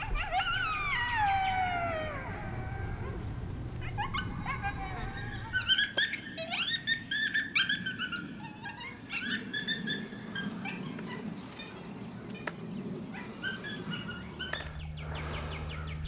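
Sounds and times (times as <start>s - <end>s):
short rising animal cries: 0.0s - 5.7s.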